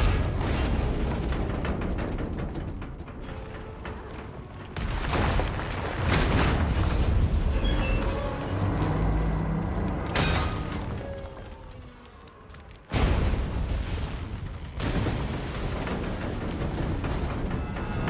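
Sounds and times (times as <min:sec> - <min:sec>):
deep rumble of straining metal: 0:00.0 - 0:04.8
dramatic music score: 0:00.0 - 0:13.8, 0:14.4 - 0:18.0.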